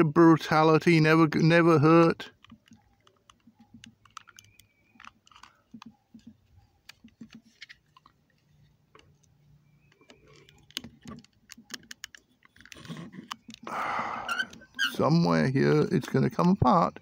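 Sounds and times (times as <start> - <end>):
metal scraping on plastic case: 10.0 - 13.7.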